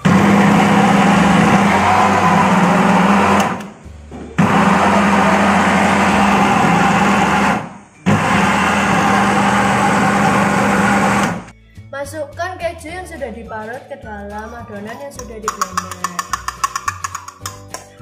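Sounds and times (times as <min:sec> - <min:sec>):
food processor motor chopping: 0:00.0 - 0:03.7, 0:04.4 - 0:11.5.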